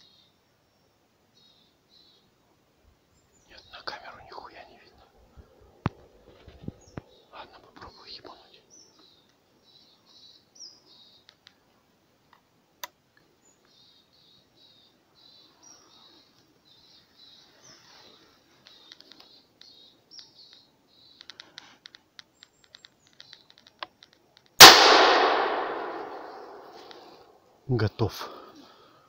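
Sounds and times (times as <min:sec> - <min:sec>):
soft clicks: 0:20.5 - 0:24.6
shotgun shot echoing: 0:24.6 - 0:27.2.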